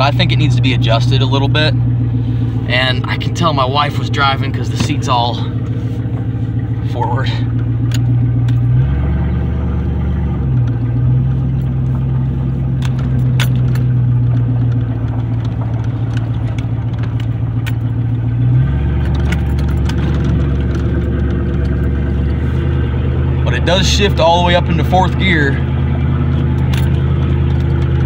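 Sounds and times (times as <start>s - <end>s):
loud truck engine drone: 0.0s - 28.0s
light rattles and clicks: 11.5s - 22.4s, 26.0s - 28.0s.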